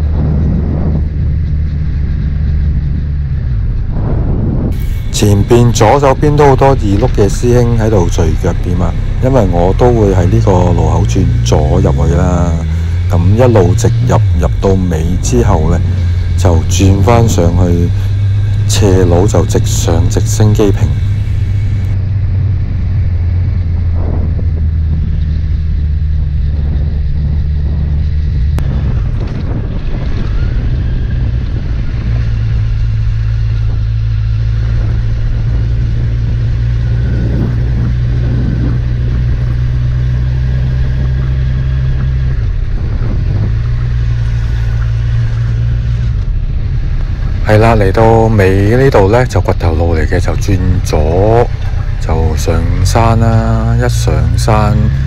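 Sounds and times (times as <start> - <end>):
car engine and road noise: 0.0 - 55.0.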